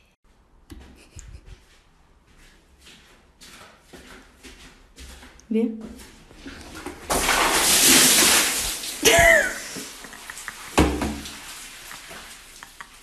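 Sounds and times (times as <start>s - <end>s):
water splashing from a bucket: 6.3s - 13.0s
person crying out startled: 9.0s - 9.9s.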